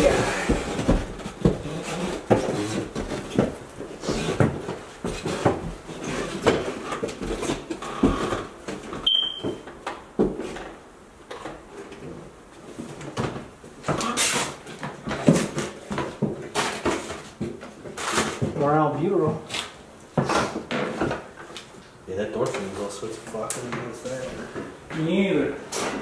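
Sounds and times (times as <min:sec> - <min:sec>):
footsteps on wooden stairs: 0:00.0 - 0:10.7
short high beep: 0:09.1 - 0:09.6.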